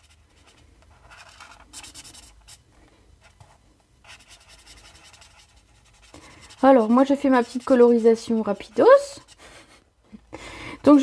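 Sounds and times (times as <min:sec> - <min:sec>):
marker scratching on card: 0:00.0 - 0:02.6, 0:04.1 - 0:09.4.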